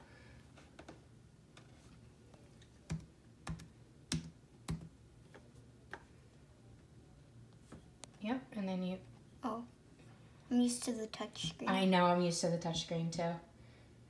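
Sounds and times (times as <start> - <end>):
laptop keyboard typing: 2.7 - 4.9.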